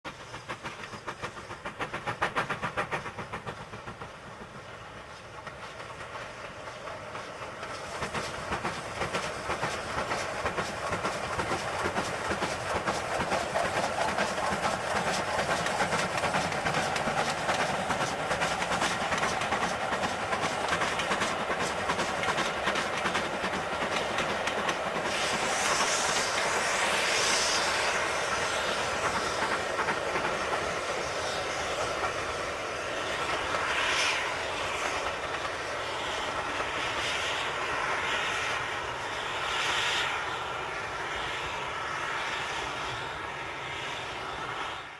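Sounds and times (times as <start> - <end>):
steam locomotive chuffing: 0.0 - 44.9
wheels clacking over rail joints: 0.1 - 26.8
steam hissing: 0.1 - 44.9.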